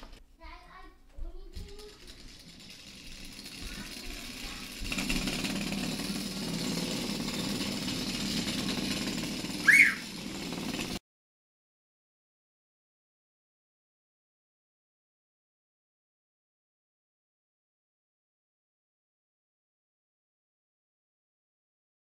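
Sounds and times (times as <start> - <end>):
wooden board rattling on tile: 1.5 - 11.0.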